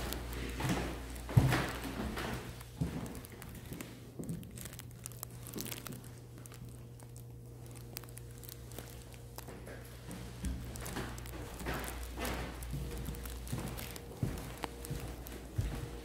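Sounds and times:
footsteps on hardwood floor: 0.0 - 4.8, 9.4 - 16.0
steady low hum: 0.0 - 16.0.

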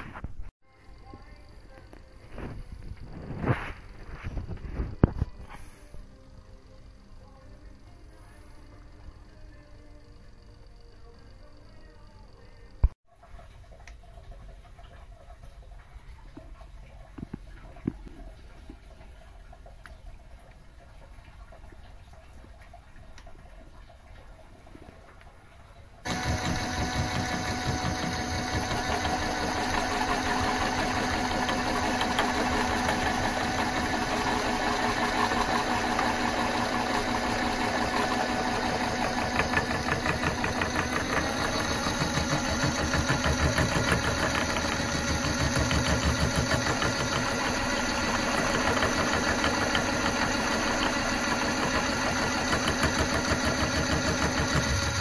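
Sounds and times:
lathe motor whine: 26.1 - 55.0.

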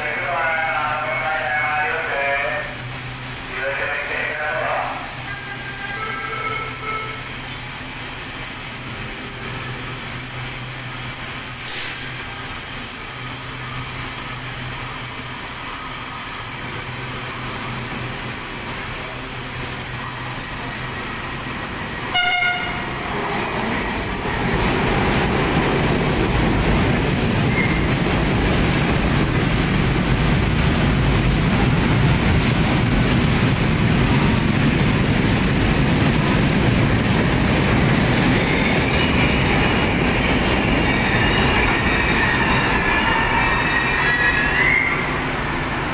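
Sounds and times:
train rumble and rail noise: 0.0 - 45.9
train horn note: 5.3 - 7.3, 22.1 - 23.0.

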